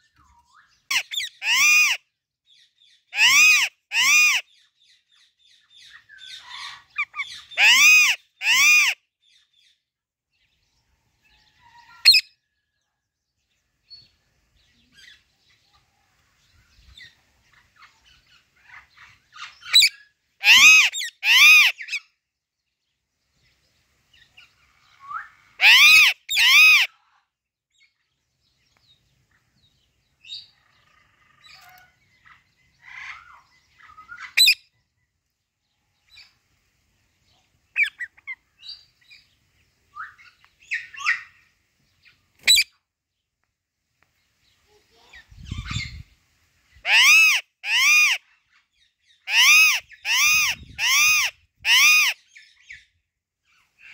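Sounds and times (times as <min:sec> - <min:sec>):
parakeet chirping: 0:00.9 - 0:02.0, 0:03.1 - 0:04.4, 0:06.3 - 0:09.0, 0:19.4 - 0:22.0, 0:25.6 - 0:26.9, 0:34.3 - 0:34.6, 0:42.4 - 0:42.6, 0:46.8 - 0:48.2, 0:49.3 - 0:52.2
parakeet squawking: 0:00.9 - 0:02.0, 0:03.2 - 0:04.4, 0:06.4 - 0:09.0, 0:19.7 - 0:22.0, 0:25.6 - 0:26.9, 0:42.4 - 0:42.6, 0:46.8 - 0:48.2, 0:49.3 - 0:52.2.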